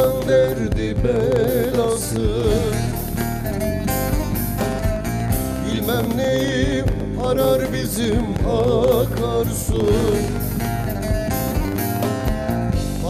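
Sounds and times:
man singing folk song: 0.0s - 4.1s, 5.5s - 11.7s
long-necked lute: 9.8s - 13.0s.

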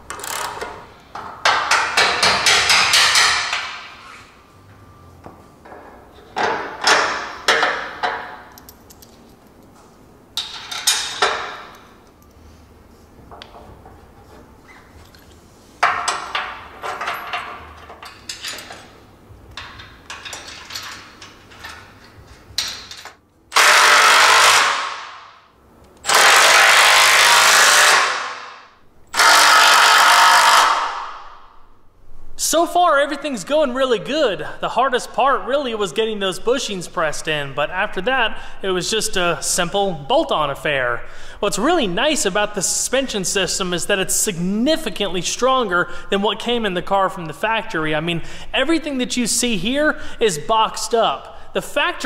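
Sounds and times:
metal clanks of tools and parts: 0.1s - 4.0s, 5.6s - 9.7s, 10.4s - 12.4s, 15.0s - 23.2s
cordless power tool bursts: 23.5s - 25.2s, 26.0s - 28.5s, 29.1s - 31.1s.

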